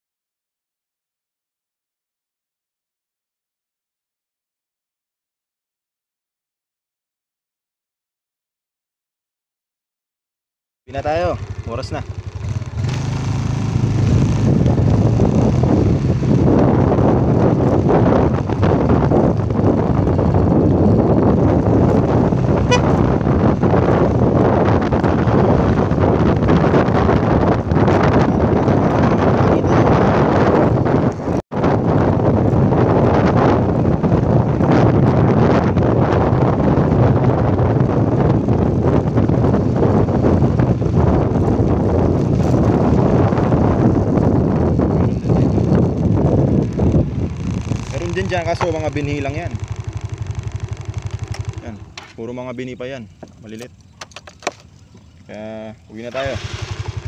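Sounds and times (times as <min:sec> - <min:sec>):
motorcycle engine running: 0:10.9 - 0:57.0
wind buffeting microphone: 0:10.9 - 0:57.0
horn beep: 0:22.6 - 0:23.1.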